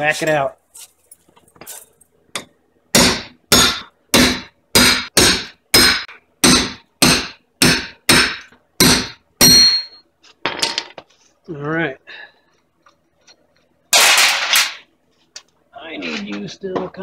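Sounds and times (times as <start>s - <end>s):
hammer striking metal: 2.4s - 10.0s.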